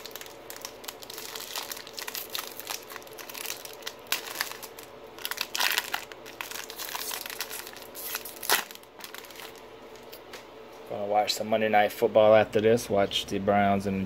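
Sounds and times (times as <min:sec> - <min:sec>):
foil wrapper crinkling: 0:00.0 - 0:10.2
wrapper ripping: 0:00.0 - 0:10.2.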